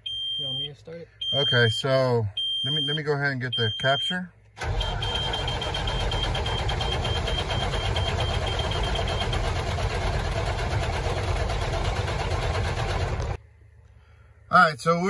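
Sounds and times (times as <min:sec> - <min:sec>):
steady high beep: 0:00.0 - 0:04.2
diesel engine cranking on starter: 0:04.6 - 0:13.4.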